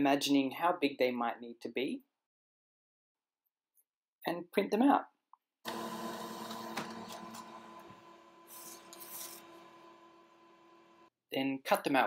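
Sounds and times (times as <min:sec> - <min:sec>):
printer motor and paper feed: 0:05.7 - 0:11.1
paper sheet swishing: 0:08.5 - 0:09.5.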